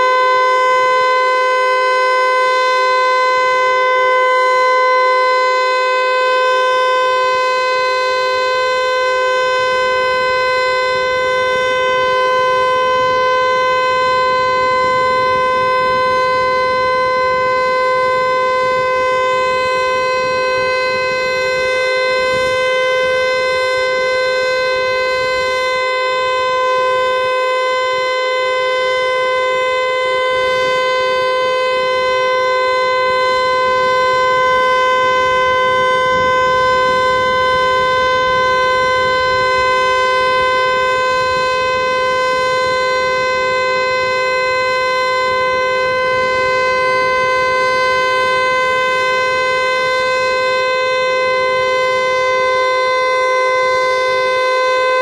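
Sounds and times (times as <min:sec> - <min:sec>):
warning siren steady tone: 0:00.0 - 0:55.0.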